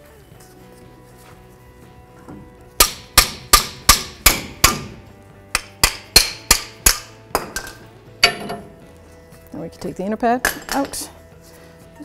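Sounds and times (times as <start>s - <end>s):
hammer striking metal: 2.8s - 8.8s.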